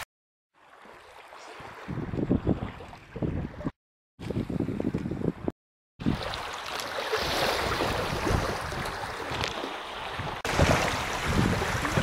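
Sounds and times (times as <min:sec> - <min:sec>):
wind buffeting microphone: 0:01.7 - 0:06.3, 0:07.6 - 0:12.0
small waves on pebble shore: 0:06.0 - 0:12.0.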